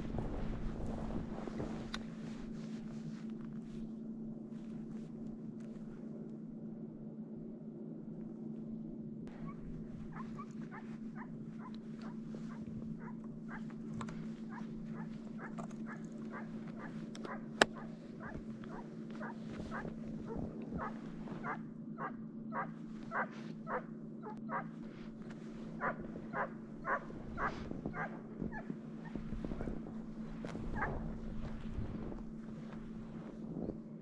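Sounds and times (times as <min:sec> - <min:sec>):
hound barking: 0:09.3 - 0:24.8, 0:25.7 - 0:29.7, 0:30.7 - 0:31.1.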